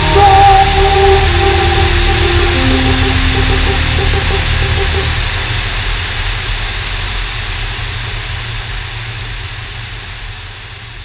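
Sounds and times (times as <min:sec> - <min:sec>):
aircraft piston engines droning: 0:00.0 - 0:07.0.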